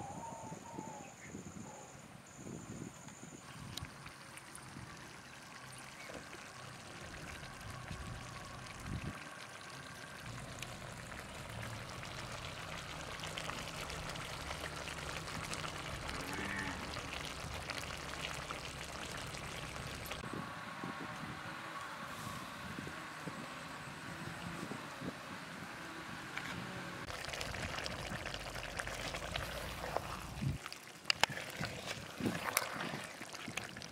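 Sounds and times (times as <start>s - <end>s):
pot bubbling over fire: 3.4s - 20.3s, 27.0s - 33.9s
fire crackling: 10.2s - 20.2s, 27.0s - 33.9s.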